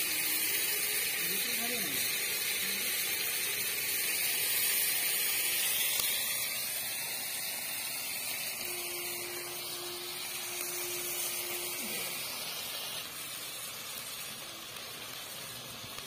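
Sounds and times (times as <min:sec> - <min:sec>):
steady hiss: 0:00.0 - 0:16.0
faint hum-like tone: 0:08.6 - 0:12.3.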